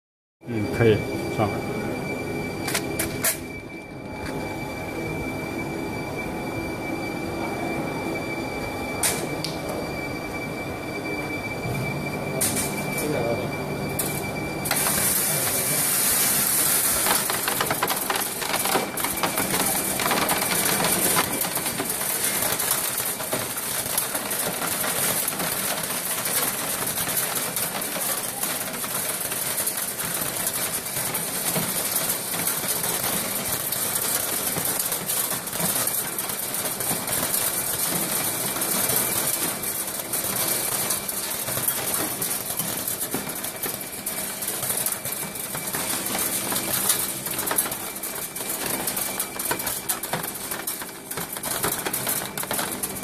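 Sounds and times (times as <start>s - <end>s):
material rattling down chutes: 16.8s - 22.6s.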